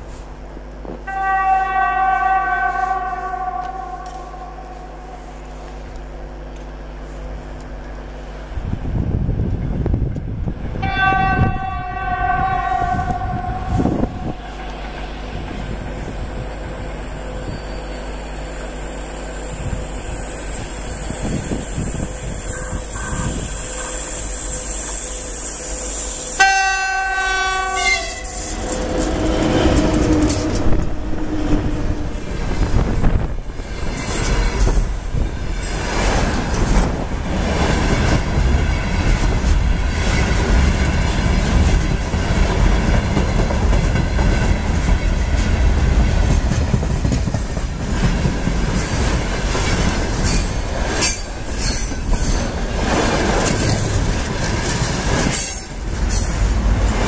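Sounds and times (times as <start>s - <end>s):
train running noise: 0.0s - 57.0s
locomotive horn: 1.0s - 6.0s, 10.8s - 15.5s, 21.8s - 33.3s.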